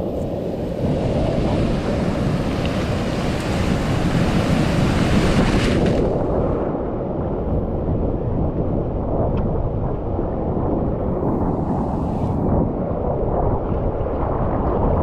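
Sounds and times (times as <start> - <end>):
churning foam: 0.6 - 6.6.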